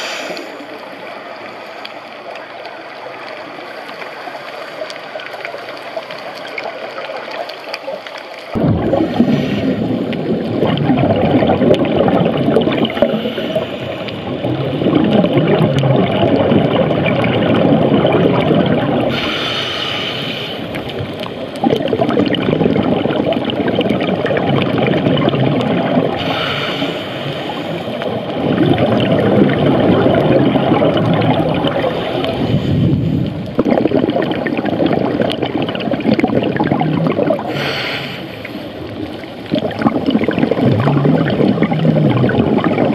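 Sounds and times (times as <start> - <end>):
regulator hissing inhale: 0.0 - 0.7, 9.1 - 10.0, 13.0 - 14.3, 19.1 - 20.8, 26.2 - 28.0, 37.5 - 38.8
gurgling exhaled bubbles underwater: 0.0 - 42.9.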